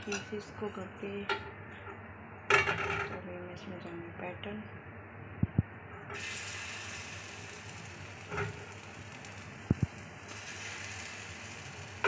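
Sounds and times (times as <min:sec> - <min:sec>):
batter sizzling in hot oil: 0:06.2 - 0:12.0.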